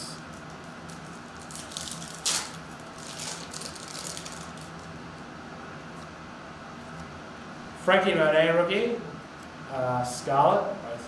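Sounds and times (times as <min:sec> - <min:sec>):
foil wrapper tearing and crinkling: 0:00.9 - 0:04.9.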